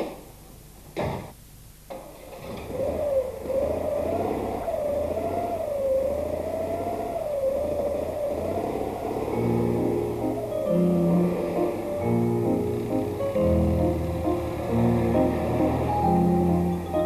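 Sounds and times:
car engine starting and running: 2.0 - 17.0
rising and falling engine whine: 2.6 - 17.0.

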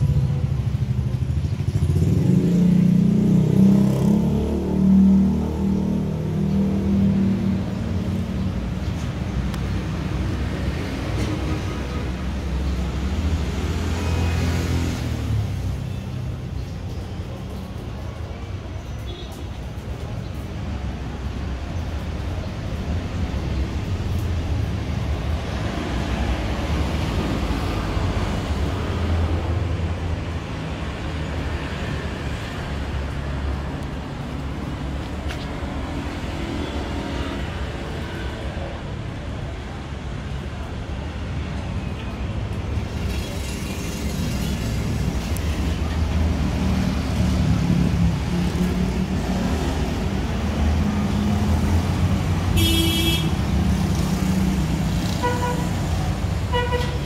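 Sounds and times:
road traffic rumble: 0.0 - 57.0
street noise: 0.0 - 57.0.

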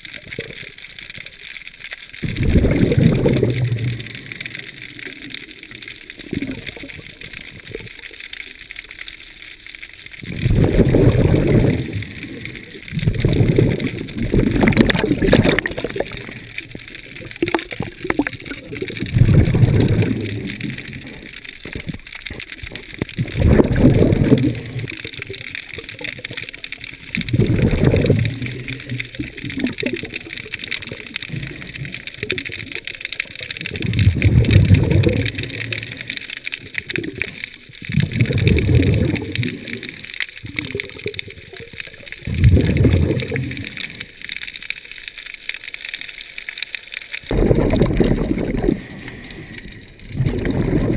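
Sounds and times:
faint steady hiss: 0.0 - 50.9
diver's breath bubbling underwater: 2.2 - 4.4, 10.2 - 16.5, 17.2 - 21.2, 23.2 - 25.4, 27.2 - 30.2, 33.7 - 44.1, 47.3 - 50.9.

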